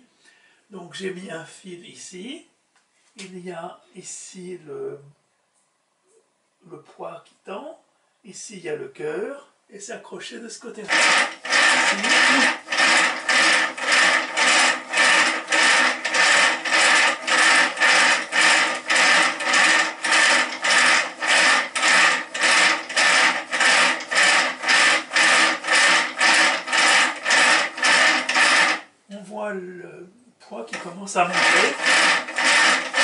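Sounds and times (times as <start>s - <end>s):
cord-twisting rig rasping whir: 10.8s - 28.9s, 30.7s - 33.0s.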